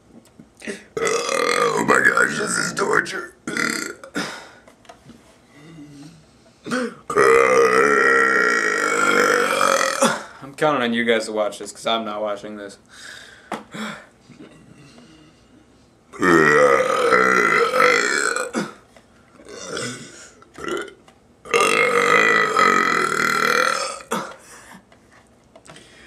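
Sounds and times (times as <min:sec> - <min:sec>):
man belching loudly: 0:01.0 - 0:04.2, 0:06.7 - 0:10.3, 0:16.1 - 0:18.8, 0:19.4 - 0:24.4.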